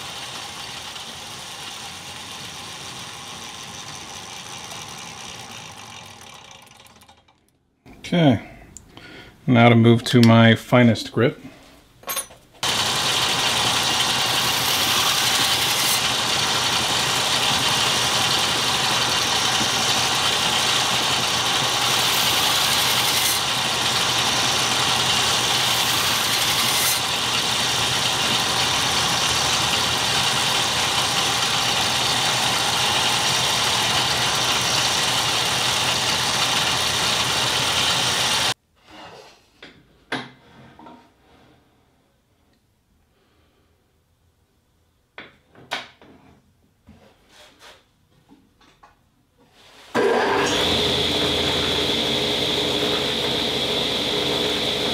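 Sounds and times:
belt grinder grinding steel: 0:00.0 - 0:07.5, 0:12.6 - 0:38.6, 0:50.0 - 0:54.9.

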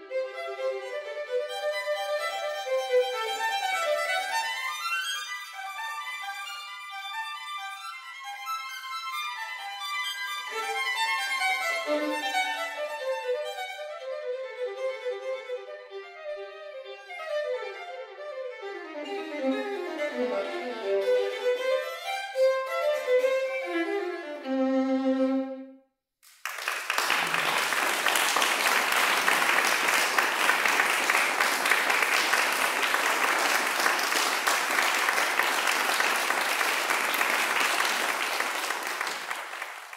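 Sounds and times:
solo violin playing: 0:00.0 - 0:25.8
audience applause: 0:26.3 - 0:39.9.

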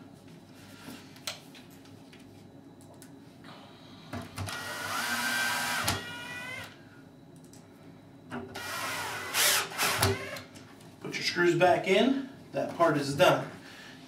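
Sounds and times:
cordless screw gun whining: 0:04.5 - 0:06.8, 0:08.6 - 0:10.5.

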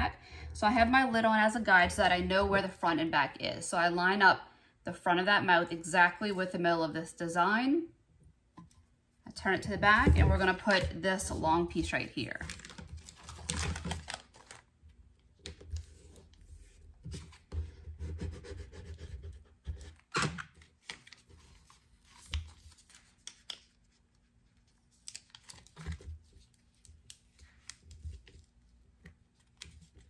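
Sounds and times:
vinyl sheet crackling and rustling: 0:12.3 - 0:14.7.

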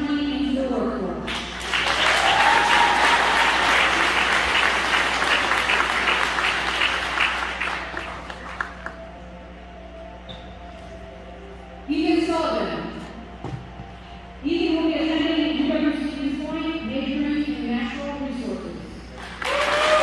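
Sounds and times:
audience applauding: 0:01.3 - 0:09.0, 0:19.2 - 0:20.0.

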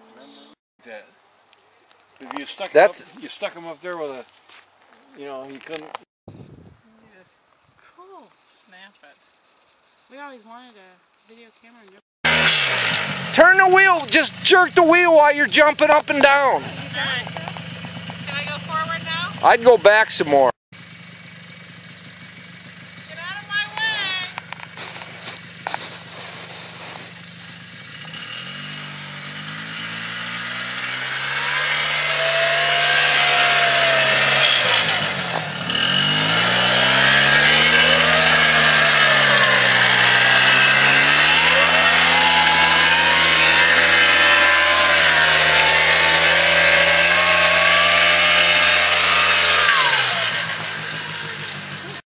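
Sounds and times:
quad engine revving: 0:12.2 - 0:20.6, 0:21.3 - 0:52.0.

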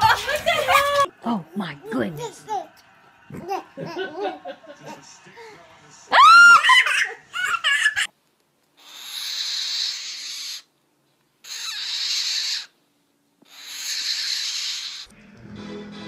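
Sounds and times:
child laughing: 0:00.0 - 0:01.1, 0:03.4 - 0:04.5, 0:06.2 - 0:08.1
animal hissing: 0:08.8 - 0:10.7, 0:11.4 - 0:12.8, 0:13.4 - 0:15.1.

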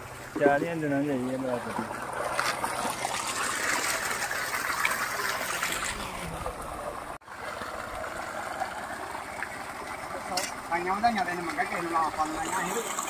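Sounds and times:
water gushing into a tank: 0:00.0 - 0:13.0.

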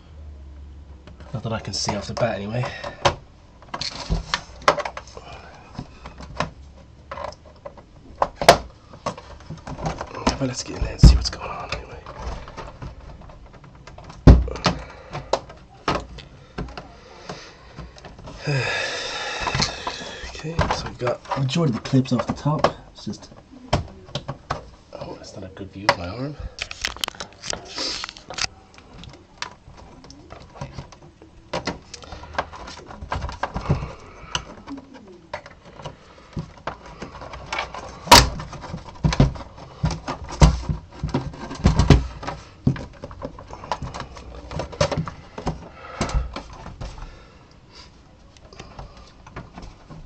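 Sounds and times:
sharp plastic crack: 0:01.1 - 0:18.4, 0:26.6 - 0:47.0
heavy thumps: 0:07.8 - 0:24.9, 0:29.1 - 0:47.3.

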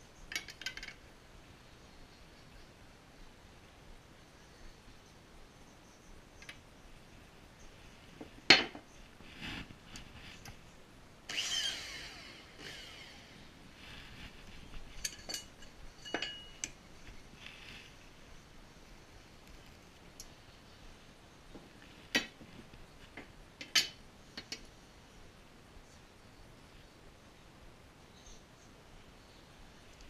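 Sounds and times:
light metallic clinks: 0:14.9 - 0:16.8.

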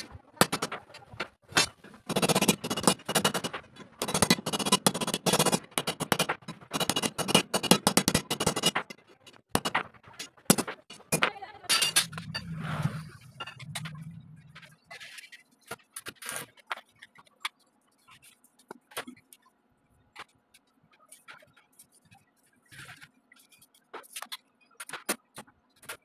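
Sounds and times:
low steady hum: 0:11.2 - 0:15.0.

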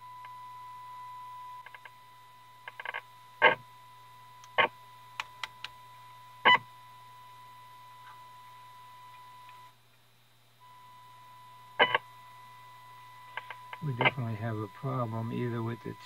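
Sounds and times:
faint low hum: 0:00.0 - 0:16.0
steady whistle-like test tone: 0:10.6 - 0:16.0.

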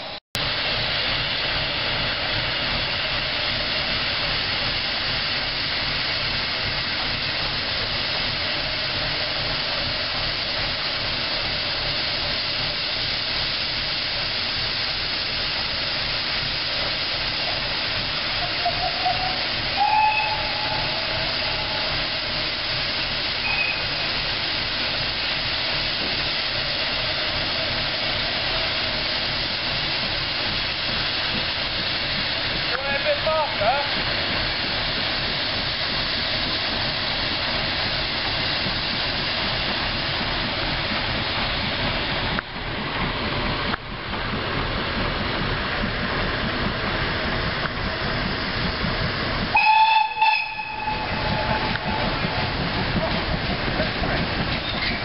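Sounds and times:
steam hissing: 0:00.0 - 0:55.0.

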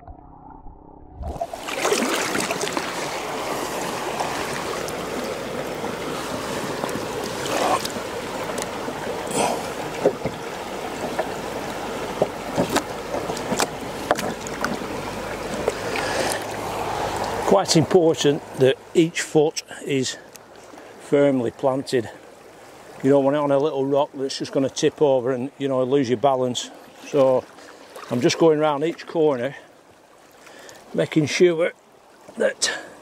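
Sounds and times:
river running over rocks: 0:01.2 - 0:33.0
wooden deck knocks and splashes: 0:12.2 - 0:14.8.

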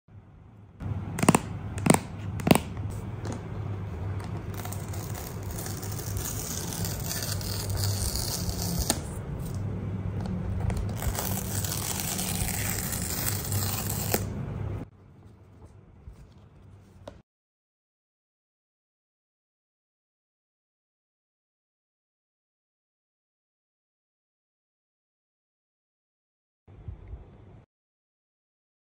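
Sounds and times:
paper strip ripping: 0:04.2 - 0:09.6, 0:10.6 - 0:14.3.

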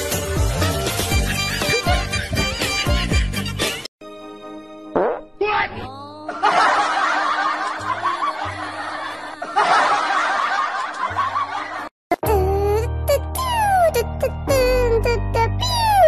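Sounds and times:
music: 0:00.0 - 0:10.4, 0:12.1 - 0:16.0
crowd laughing: 0:01.0 - 0:03.8, 0:06.3 - 0:11.9.

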